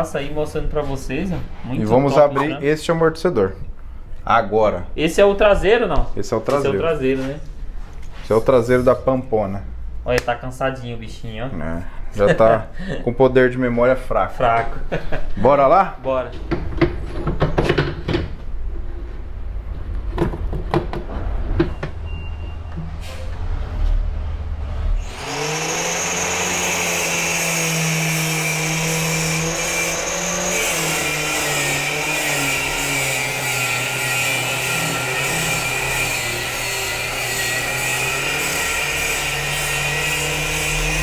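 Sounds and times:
low rumble: 21.0 - 25.1
angle grinder cutting metal: 25.0 - 41.0.

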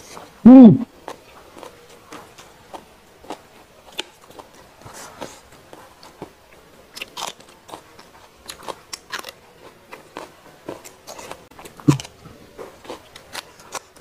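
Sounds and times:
crunching raw vegetables: 6.9 - 14.0.

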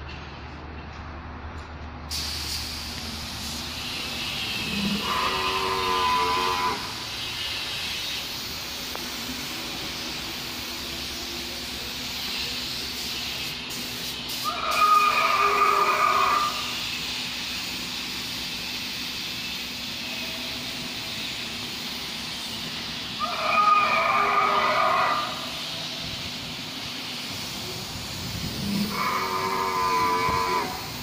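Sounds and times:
recorded dinosaur roar: 4.7 - 6.9, 23.2 - 25.4, 28.5 - 30.8.

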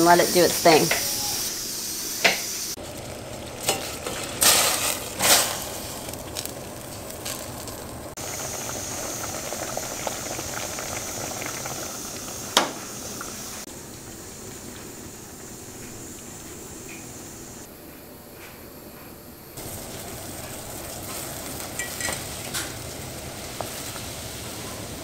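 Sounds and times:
pressure cooker hissing steam: 0.0 - 7.4, 8.2 - 13.7, 19.6 - 25.0.

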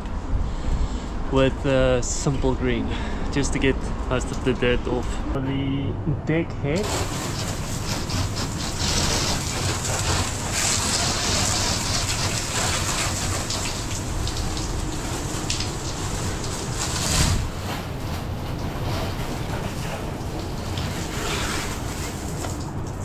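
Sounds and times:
heavy rain falling: 6.8 - 23.0.

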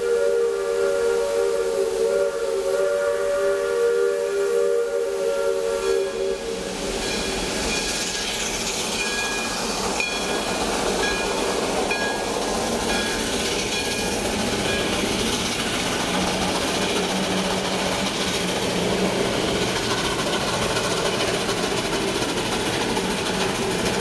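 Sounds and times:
steam locomotive whistle: 0.0 - 7.9
steam hissing: 0.0 - 24.0
train running: 0.0 - 24.0.

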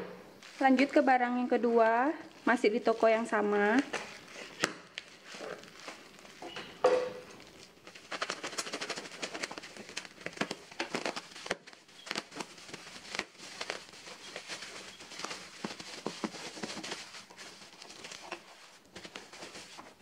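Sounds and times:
bubble wrap crinkling: 0.4 - 20.0
scissors cutting taped plastic: 7.4 - 16.7.

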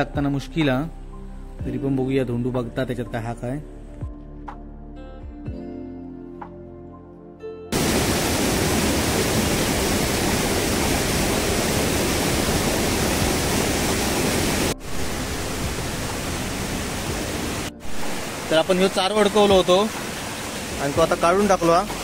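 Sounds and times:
faint background music: 0.0 - 7.6, 14.7 - 22.0
rushing stream: 7.7 - 22.0.

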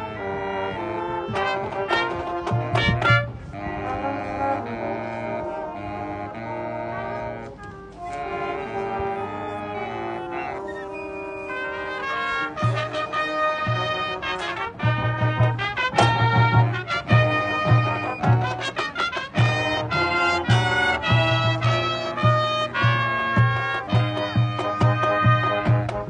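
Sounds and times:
brass section playing chords: 0.0 - 26.0
bass drum thuds: 14.8 - 18.7.

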